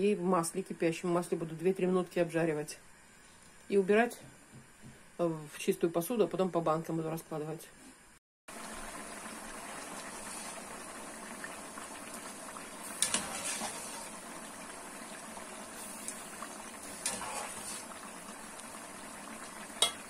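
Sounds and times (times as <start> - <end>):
pot boiling and bubbling: 8.5 - 20.0
wire skimmer clinking on pot: 19.8 - 20.0.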